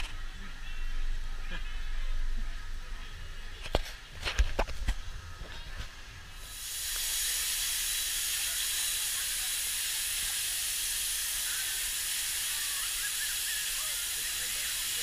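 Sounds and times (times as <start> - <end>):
steady hiss: 5.0 - 15.0.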